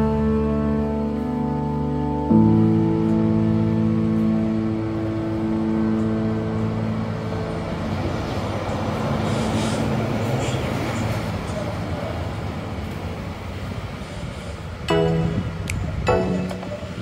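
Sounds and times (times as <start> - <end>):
sustained musical chord: 0.0 - 9.1, 14.9 - 17.0
road traffic passing: 0.0 - 17.0.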